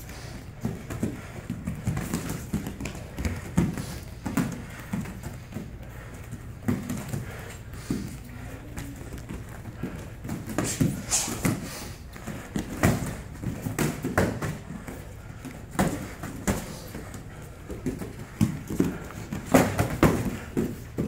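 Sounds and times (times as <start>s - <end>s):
bare feet stamping on mats: 0.0s - 21.0s
boxing gloves slapping: 15.5s - 21.0s.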